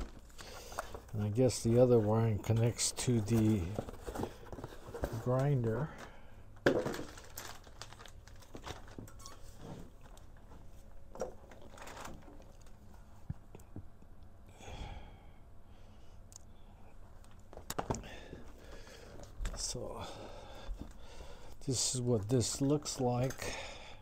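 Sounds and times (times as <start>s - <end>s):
papers rustling: 0.0s - 13.1s
plastic bag crinkling: 6.7s - 10.3s, 11.2s - 12.9s.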